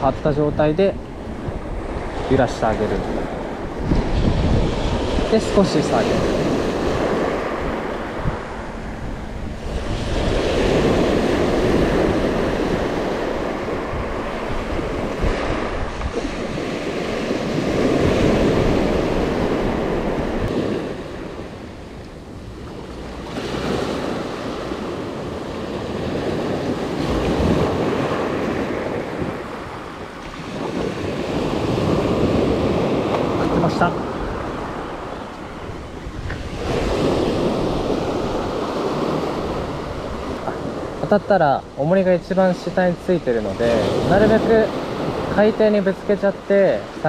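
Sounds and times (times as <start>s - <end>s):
waves washing on pebble beach: 36.3s - 47.0s.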